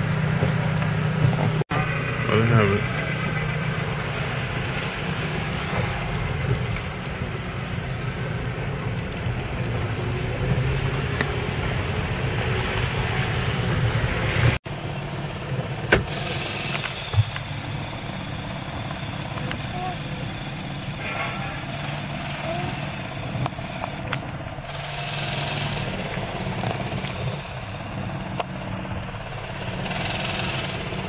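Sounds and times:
car cabin low rumble: 0.0s - 30.2s.

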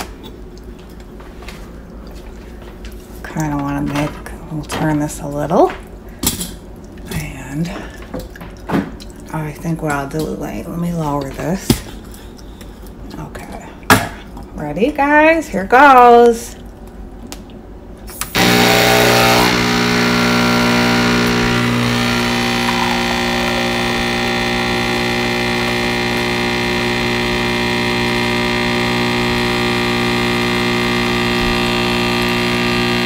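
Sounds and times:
espresso machine pump buzzing hum: 18.3s - 33.0s.

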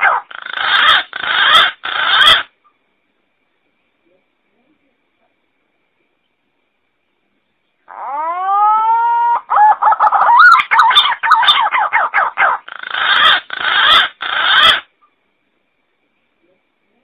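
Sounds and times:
pigeon calling: 0.0s - 2.5s, 7.9s - 14.9s.

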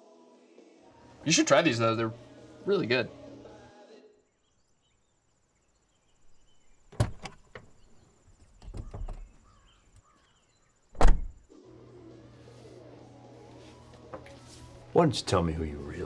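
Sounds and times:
thuds and shuffling: 7.0s - 9.5s
car door latch click: 11.0s - 11.4s
car door slamming shut: 11.0s - 11.4s.

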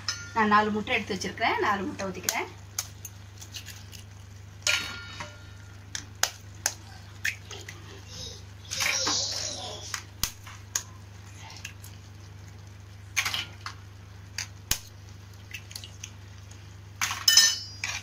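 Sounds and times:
low steady hum: 0.0s - 18.0s
soft wet sounds: 1.7s - 4.5s, 5.7s - 13.2s, 14.4s - 16.9s
eggs cracking against a pan rim: 2.0s - 8.0s, 8.6s - 18.0s.

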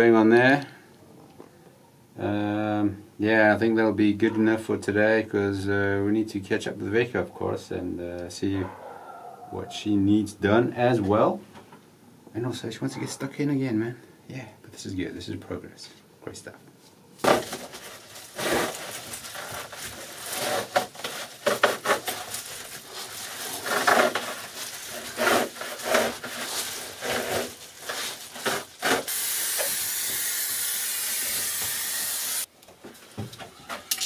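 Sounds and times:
foil insulation crinkling: 17.2s - 30.2s.

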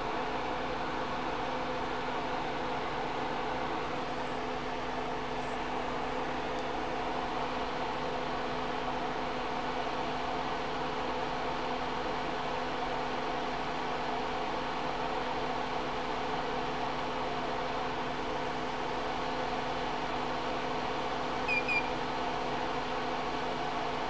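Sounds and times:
electric fan whirring: 0.0s - 24.0s.

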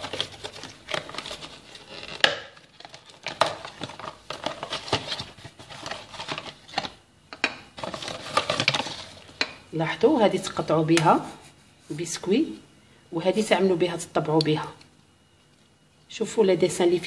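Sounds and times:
cardboard rustling and scraping: 0.0s - 7.0s, 7.8s - 9.3s.

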